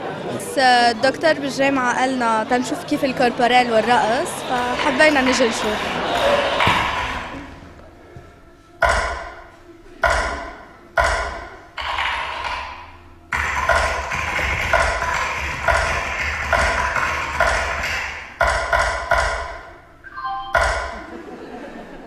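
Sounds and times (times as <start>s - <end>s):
bright ringing chimes: 20.0s - 21.3s.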